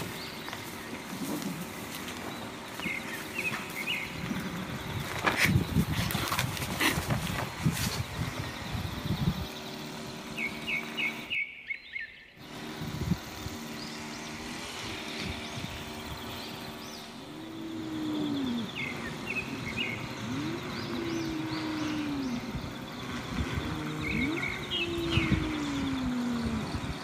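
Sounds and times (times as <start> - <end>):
small birds chirping: 0.0 - 27.0
cats yowling: 17.2 - 27.0.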